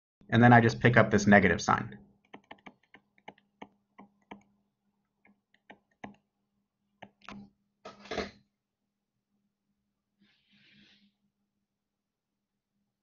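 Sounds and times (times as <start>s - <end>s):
stylus tapping on screen: 2.2s - 4.6s, 5.2s - 6.3s, 7.0s - 7.5s.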